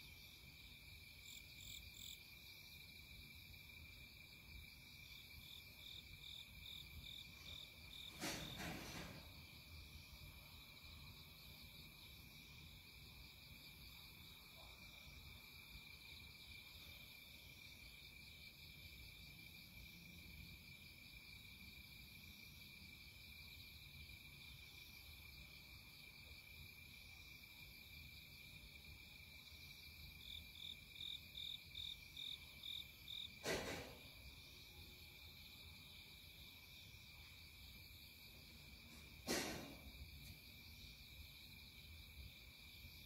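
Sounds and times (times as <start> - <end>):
sharp knock: 33.4 - 34.0, 39.2 - 39.9.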